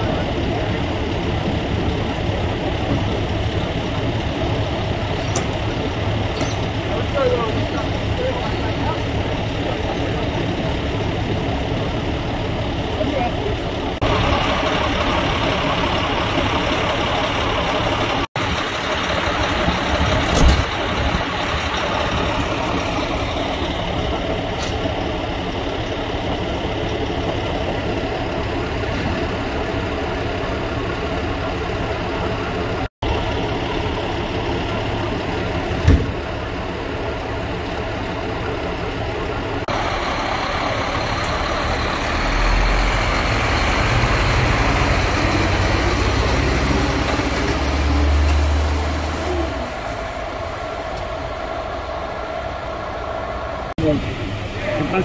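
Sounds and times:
diesel engine idling: 0:00.0 - 0:55.0.

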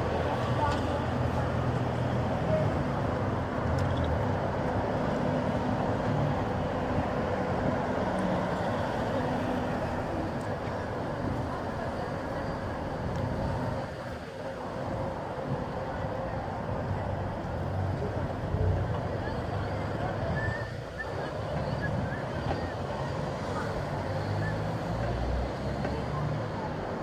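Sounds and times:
steady road noise: 0:00.0 - 0:27.0
cars passing: 0:16.8 - 0:27.0.

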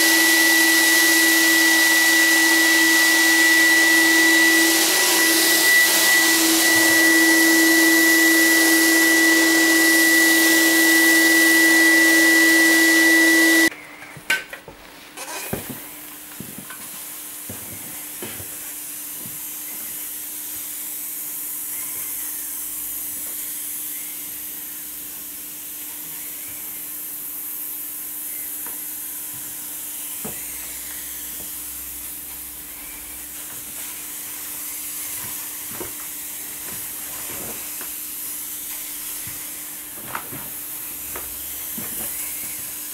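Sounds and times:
fogger whining: 0:00.0 - 0:13.7.

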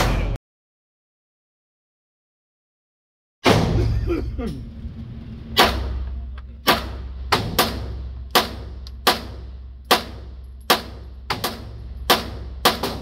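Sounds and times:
pistol shots echoing indoors: 0:06.7 - 0:13.0.

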